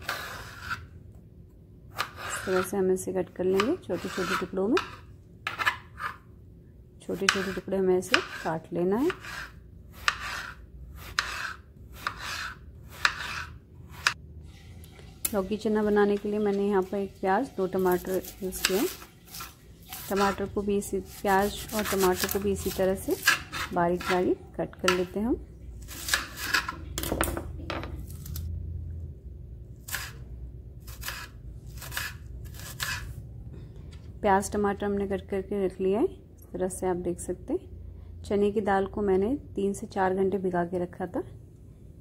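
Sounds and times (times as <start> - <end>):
knife cutting onion on board: 0.0 - 0.9, 1.9 - 6.3, 7.1 - 14.2, 17.7 - 25.2, 25.8 - 27.0, 29.8 - 33.2
low steady hum: 0.0 - 42.0
knife chopping on wooden board: 7.2 - 8.4, 9.0 - 14.2, 21.1 - 24.2.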